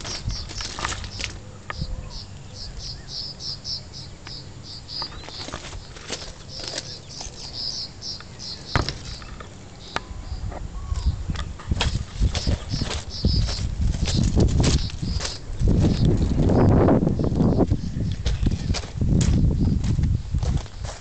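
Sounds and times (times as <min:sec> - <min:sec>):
footsteps on gravel: 0:00.0 - 0:01.4, 0:04.9 - 0:09.6, 0:11.6 - 0:21.0
high chirping: 0:00.0 - 0:11.3, 0:12.2 - 0:18.7.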